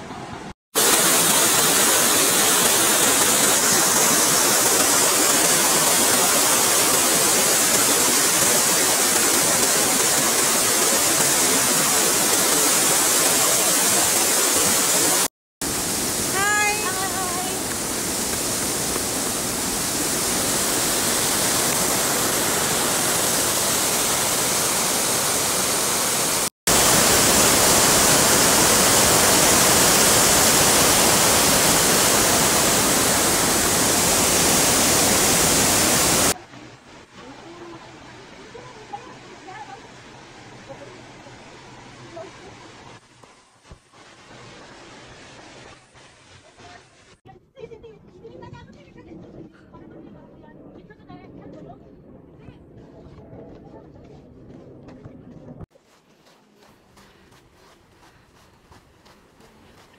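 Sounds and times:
water rushing down concrete channel: 0:00.8 - 0:36.7.

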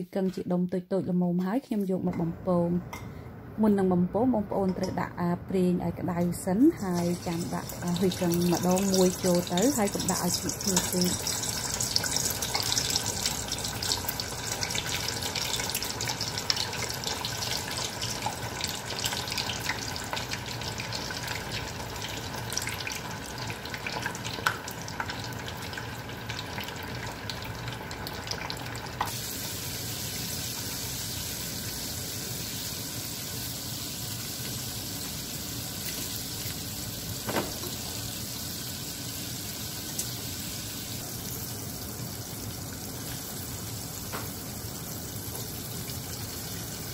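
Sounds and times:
food deep-frying in oil: 0:06.3 - 0:46.9.

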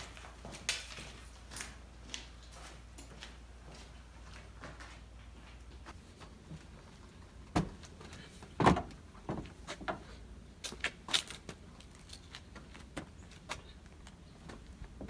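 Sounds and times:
bike knocking and clunking: 0:07.4 - 0:10.2.

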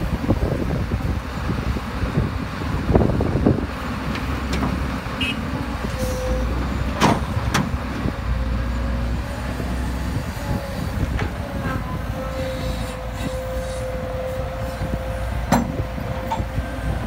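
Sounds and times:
excavator diesel engine: 0:00.0 - 0:17.0
hydraulic whine: 0:09.7 - 0:17.0.

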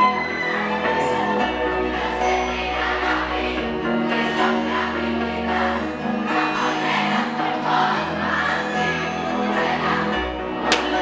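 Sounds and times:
loud club crowd: 0:00.0 - 0:11.0
many voices singing: 0:00.0 - 0:11.0
live pop band music: 0:10.3 - 0:11.0.

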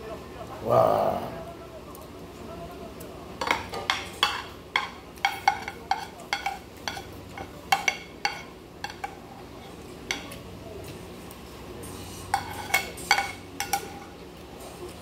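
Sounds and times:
cutlery clinking on a plate: 0:03.4 - 0:10.4, 0:12.3 - 0:14.2.

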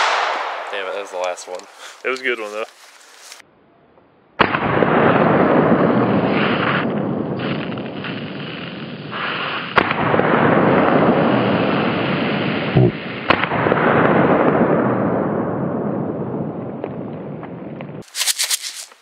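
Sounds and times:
firework sharp cracks: 0:00.0 - 0:02.7, 0:04.4 - 0:14.7
firework fountain hissing: 0:07.4 - 0:09.8.

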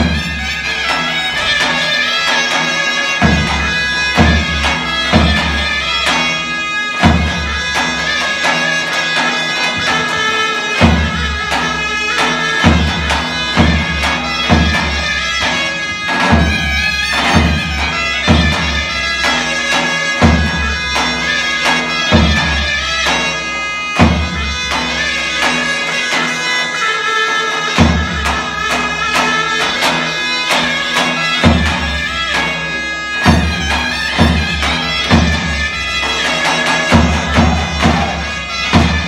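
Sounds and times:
shrill reedy pipe melody: 0:00.0 - 0:39.0
bass drum rhythm: 0:36.9 - 0:39.0.

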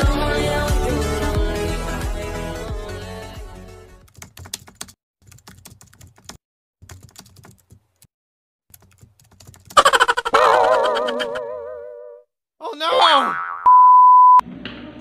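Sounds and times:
computer keyboard typing: 0:04.1 - 0:08.1, 0:08.7 - 0:10.1
cartoon sound effect with wobbling pitch: 0:09.8 - 0:12.2.

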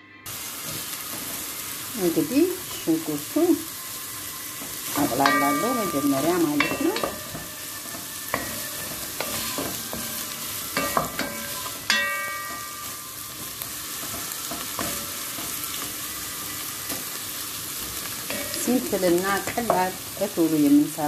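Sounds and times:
onions sizzling in a pot: 0:00.2 - 0:21.0
wooden spoon scraping: 0:04.0 - 0:20.3.

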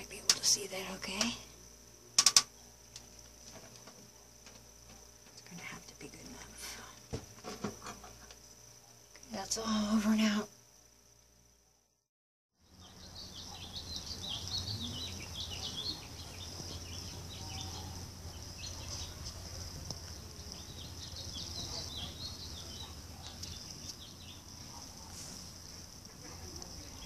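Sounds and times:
low steady hum: 0:00.0 - 0:12.0, 0:12.6 - 0:27.0
small birds chirping: 0:12.6 - 0:27.0.

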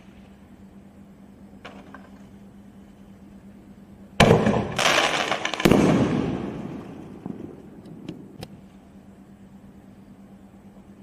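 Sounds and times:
firework bangs: 0:04.2 - 0:08.5.

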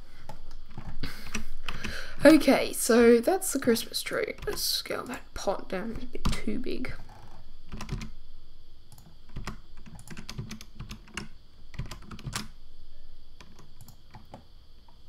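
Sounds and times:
computer keyboard keys clicking: 0:04.3 - 0:04.7, 0:07.1 - 0:08.1, 0:08.9 - 0:12.5, 0:13.4 - 0:14.4.

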